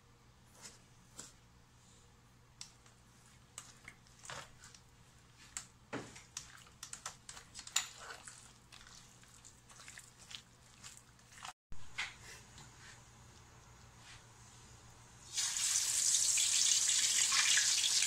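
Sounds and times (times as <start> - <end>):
wet squelches of hands in marinade: 8.1 - 11.5.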